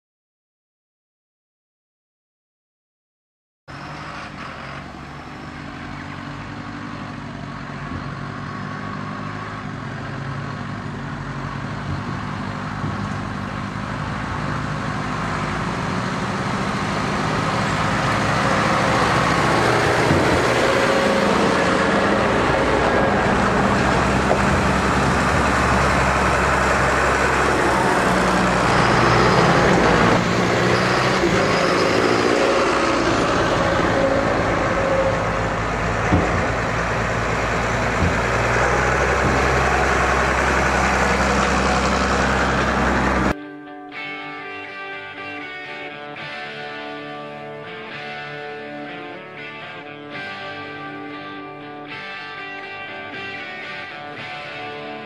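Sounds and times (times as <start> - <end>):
tractor diesel engine: 3.7 - 43.4.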